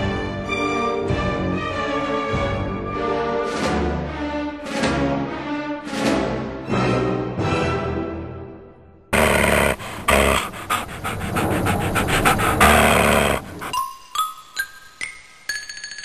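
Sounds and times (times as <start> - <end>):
dog growling: 9.2 - 13.8.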